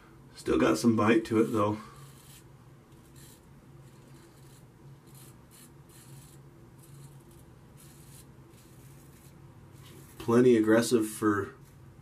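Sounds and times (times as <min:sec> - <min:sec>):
razor scraping stubble: 0:01.3 - 0:10.4.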